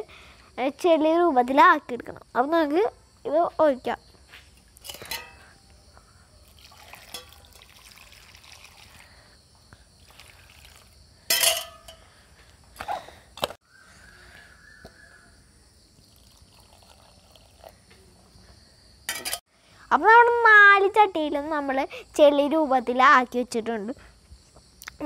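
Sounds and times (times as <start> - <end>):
water trickling onto soil: 6.4 - 9.2, 10.0 - 11.0, 16.0 - 17.8.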